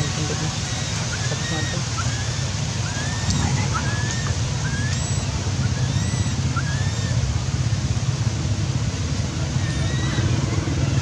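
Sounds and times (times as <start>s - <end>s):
baby monkey crying: 0.0s - 7.2s, 9.5s - 11.0s
steady low rumble: 0.0s - 11.0s.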